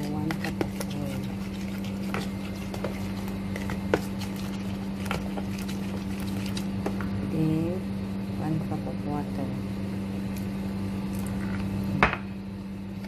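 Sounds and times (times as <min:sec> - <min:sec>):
spoon stirring wet batter: 0:00.0 - 0:07.1
steady low hum: 0:00.0 - 0:13.0.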